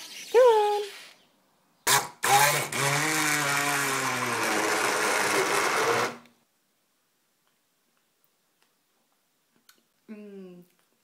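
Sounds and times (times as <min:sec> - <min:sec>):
stick blender blending: 0:01.9 - 0:06.3.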